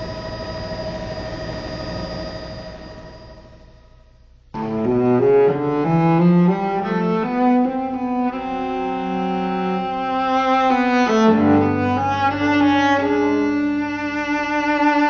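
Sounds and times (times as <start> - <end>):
bowed string music: 4.6 - 15.0
low cello melody: 4.6 - 15.0.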